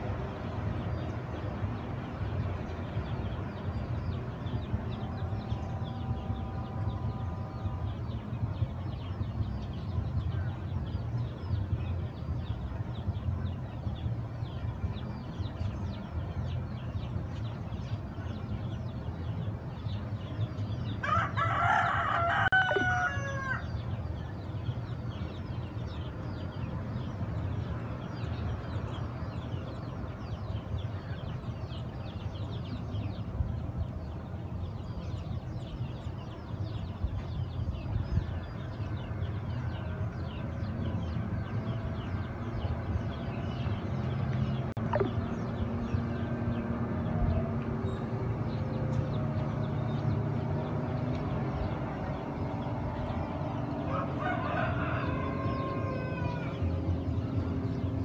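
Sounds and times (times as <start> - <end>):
steady low rumble: 0.0 - 58.0
rooster crowing: 21.0 - 23.6, 53.9 - 56.6
faint high chirping: 44.8 - 45.3.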